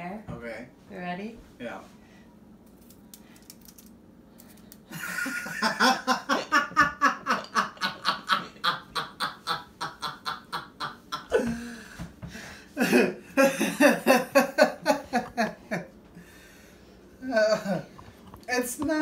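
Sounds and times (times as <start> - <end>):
loud rhythmic laughter: 4.9 - 11.7.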